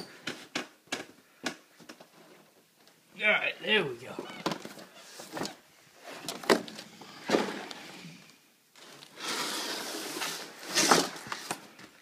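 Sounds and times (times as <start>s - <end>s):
cardboard packaging scraping and rubbing: 8.8s - 11.6s.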